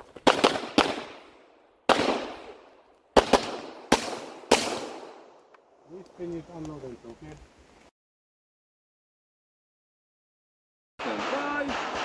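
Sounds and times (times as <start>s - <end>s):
pistol shots echoing: 0.2s - 5.4s, 11.0s - 12.0s.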